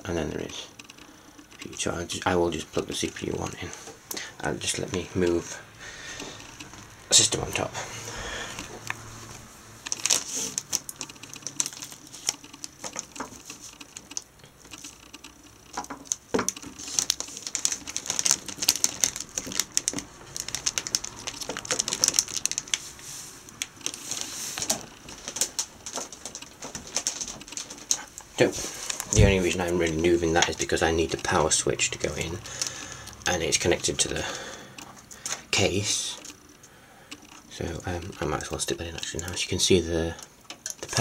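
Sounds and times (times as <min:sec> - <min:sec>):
handling noise: 0:03.0 - 0:31.3.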